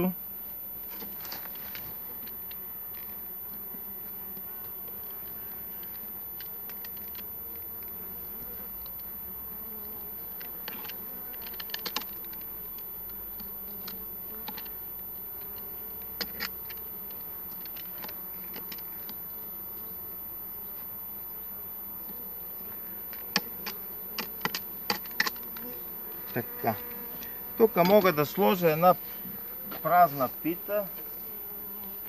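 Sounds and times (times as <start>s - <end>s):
honeybees buzzing: 0.0s - 32.0s
sharp clicks and knocks: 23.1s - 25.4s.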